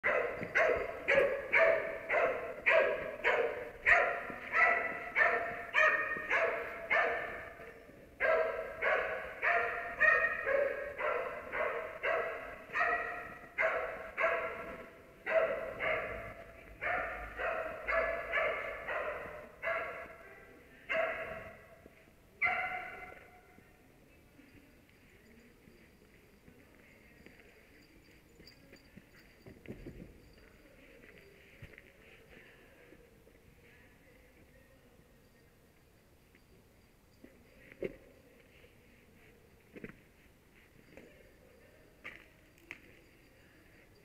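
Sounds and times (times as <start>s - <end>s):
dog barking with echo: 0.0s - 7.6s, 8.2s - 21.7s, 22.4s - 23.4s.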